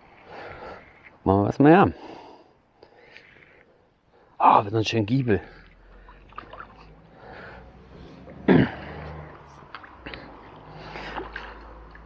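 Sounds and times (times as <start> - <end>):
person clearing throat: 8.4 - 9.0.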